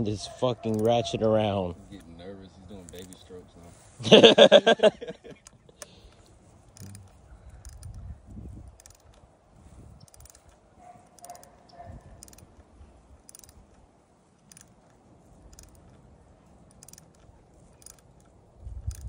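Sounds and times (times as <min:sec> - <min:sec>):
ratchet wrench clicking: 0:00.6 - 0:01.2, 0:02.7 - 0:03.4, 0:05.3 - 0:19.0.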